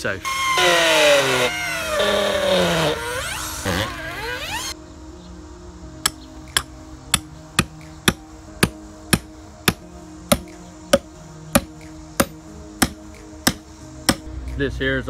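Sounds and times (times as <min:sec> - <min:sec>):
drill boring into wood: 0:00.2 - 0:04.8
hammer striking metal pin: 0:06.0 - 0:14.3.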